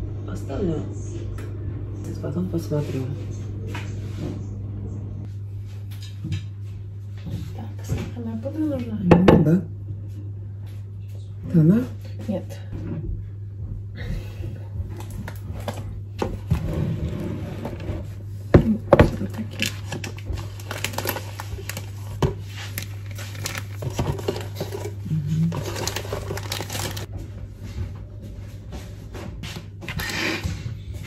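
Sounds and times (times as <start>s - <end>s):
steady low hum: 0.0s - 31.0s
crinkling and scraping: 14.8s - 31.0s.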